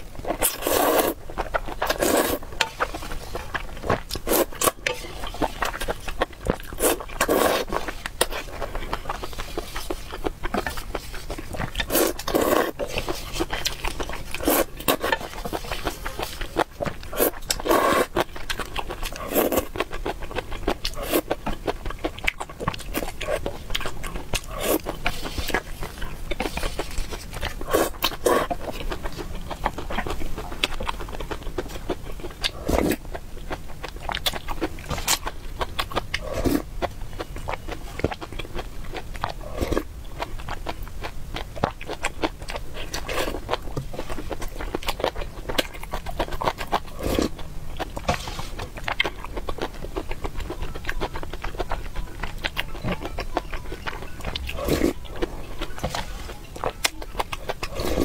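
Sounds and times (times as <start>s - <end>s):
wet chewing: 0.0s - 58.0s
slurping: 0.3s - 19.8s, 22.7s - 29.2s.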